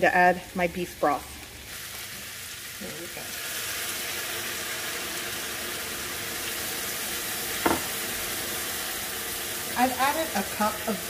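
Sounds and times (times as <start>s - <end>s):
broth sizzling in hot skillet: 0.0s - 11.0s
sharp knock: 7.6s - 7.9s.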